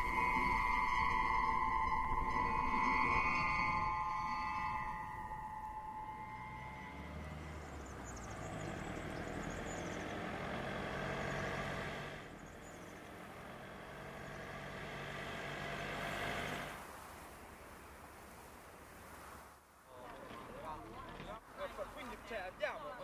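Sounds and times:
car engine and tyres approaching: 0.0 - 17.0.

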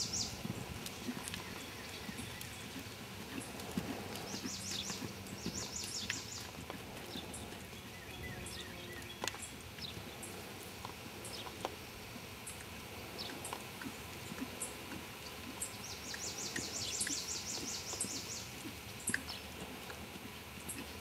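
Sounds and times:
bird chirping: 0.0 - 0.4, 4.2 - 10.0, 15.6 - 19.4
horse hooves thudding on sand: 0.0 - 21.0.

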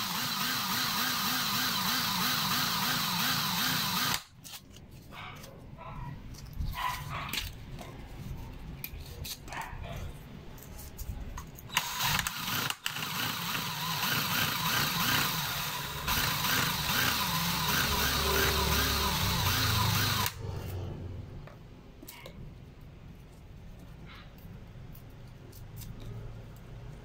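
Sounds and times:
cordless drill spinning: 0.0 - 4.3, 11.7 - 20.4.

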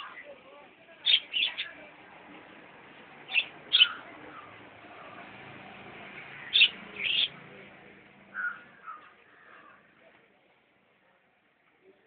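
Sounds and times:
budgerigars chirping: 3.3 - 4.6, 6.4 - 7.4.

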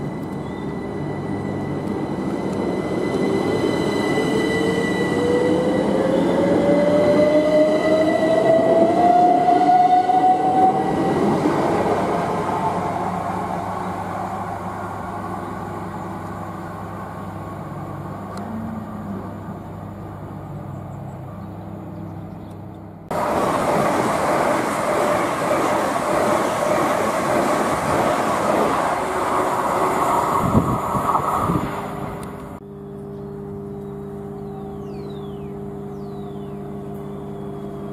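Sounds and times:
train passing rushing noise: 0.0 - 18.2, 23.1 - 32.6.

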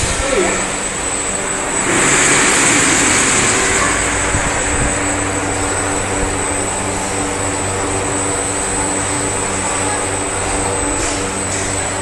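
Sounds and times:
rushing hiss: 0.0 - 8.7
machinery high whine: 0.0 - 12.0
machinery low hum: 0.0 - 12.0.

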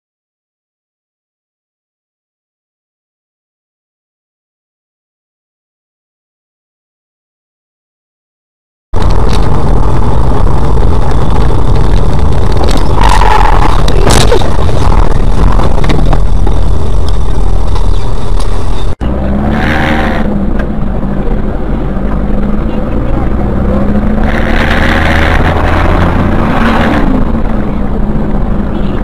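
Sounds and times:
road and engine noise: 9.0 - 29.0
traffic noise: 9.0 - 29.0.

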